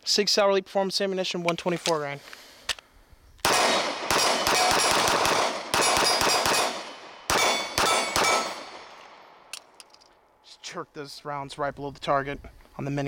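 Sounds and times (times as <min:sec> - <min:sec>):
pistol gunshots: 0:03.4 - 0:09.5
steel targets ringing: 0:07.3 - 0:08.6.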